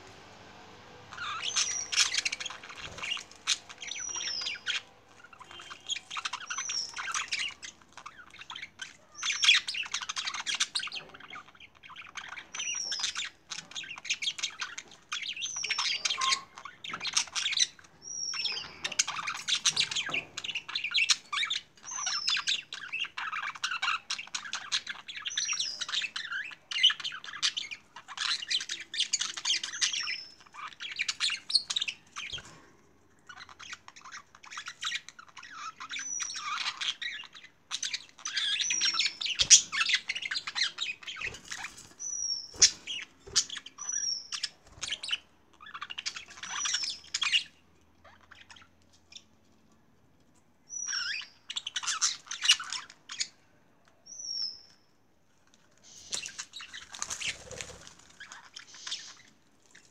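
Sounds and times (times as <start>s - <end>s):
budgerigars chattering: 1.1s - 32.5s.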